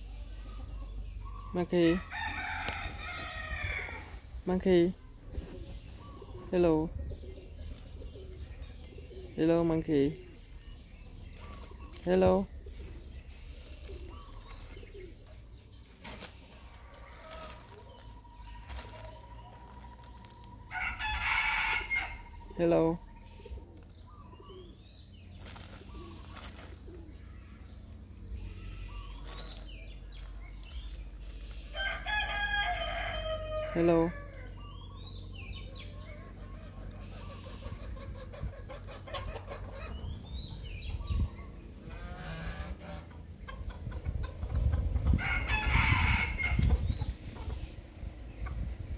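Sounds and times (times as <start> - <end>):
chickens clucking: 0.0 - 48.9
rooster crowing: 20.7 - 22.3, 31.7 - 34.5, 45.2 - 46.6
faint bird calls: 21.8 - 32.0.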